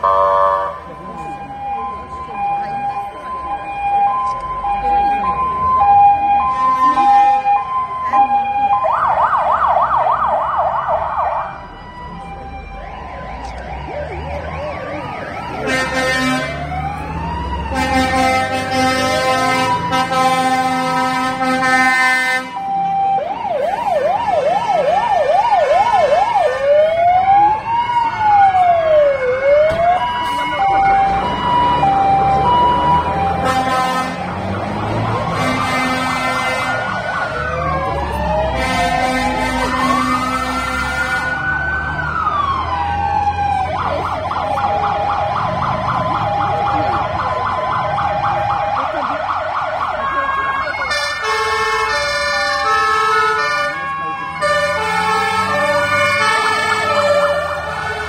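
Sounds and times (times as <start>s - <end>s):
rising and falling siren wails: 0.0s - 58.0s
two-tone fire engine siren: 0.0s - 58.0s
long horn blast: 15.6s - 16.7s, 17.6s - 22.6s, 33.2s - 37.0s, 38.5s - 41.4s, 50.9s - 53.8s, 54.4s - 58.0s.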